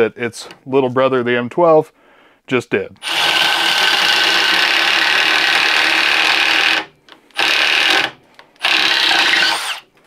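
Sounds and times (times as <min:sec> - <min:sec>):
impact driver drilling into wood: 0:03.0 - 0:09.9.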